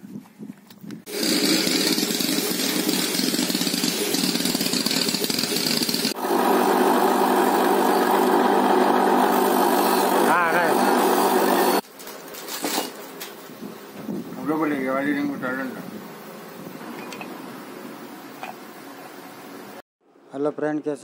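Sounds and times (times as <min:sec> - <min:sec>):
bench grinder humming: 0:01.1 - 0:11.8.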